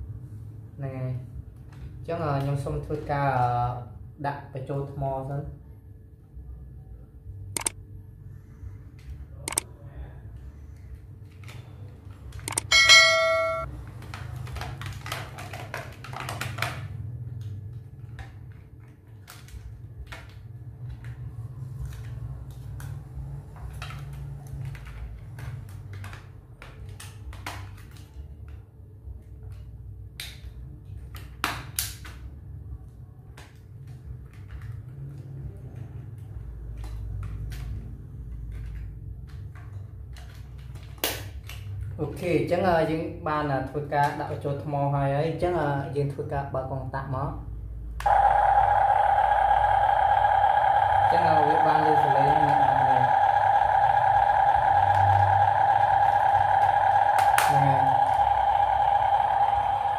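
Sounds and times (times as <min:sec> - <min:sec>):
steady low hum: 0:00.0 - 0:14.0, 0:47.4 - 0:59.9
short bell-like ring: 0:12.7 - 0:13.7.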